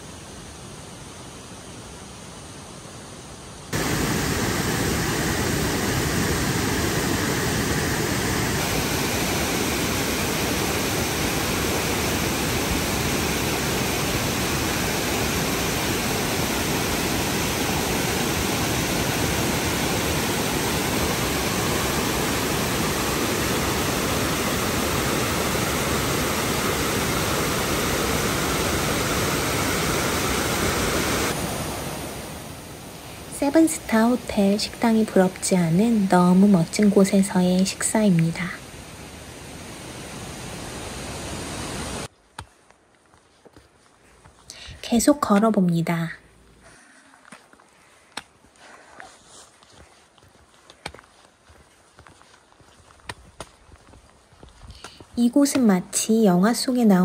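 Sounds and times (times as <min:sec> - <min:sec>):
steady rushing noise: 0:03.7 - 0:42.1.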